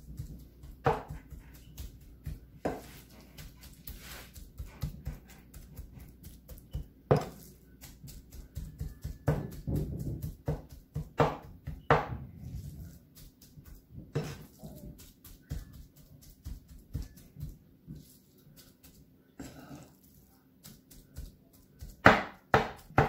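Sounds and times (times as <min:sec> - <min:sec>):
cleaver chopping on wooden board: 0:07.1 - 0:07.4, 0:10.5 - 0:12.2, 0:22.0 - 0:23.0.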